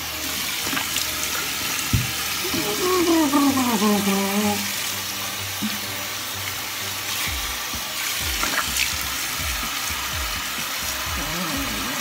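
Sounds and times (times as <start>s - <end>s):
tap running: 0.3s - 2.4s, 5.5s - 10.8s
water splashing on face: 7.1s - 9.8s.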